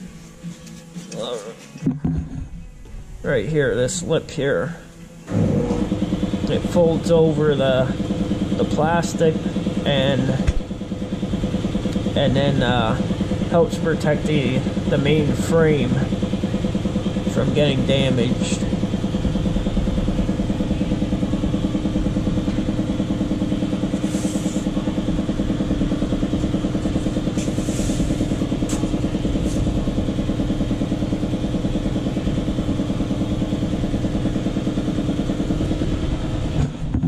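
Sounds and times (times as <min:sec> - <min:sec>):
engine-driven machine running: 0:00.0 - 0:37.0.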